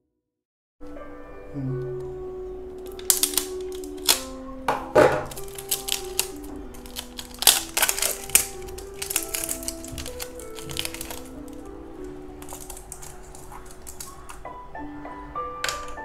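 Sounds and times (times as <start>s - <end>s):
background music: 0.8s - 16.0s
plastic bottle crackling: 2.8s - 14.5s, 15.7s - 16.0s.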